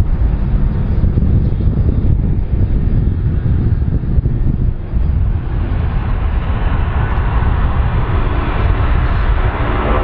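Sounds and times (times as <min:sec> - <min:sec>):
airplane engines rumbling: 0:00.0 - 0:10.0.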